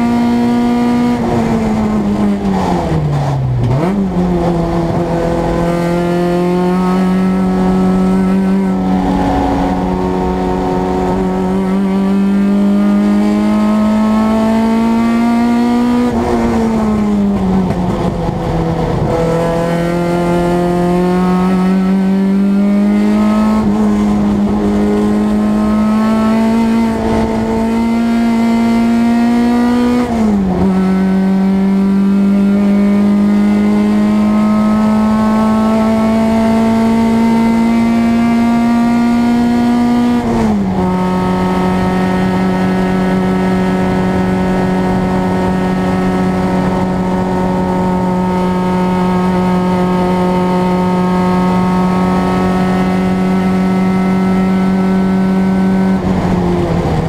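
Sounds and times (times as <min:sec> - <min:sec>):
race car engine from inside: 0:00.0 - 0:57.0.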